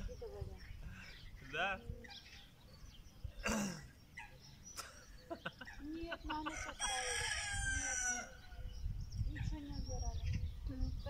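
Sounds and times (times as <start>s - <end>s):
rooster crowing: 6.5s - 8.4s.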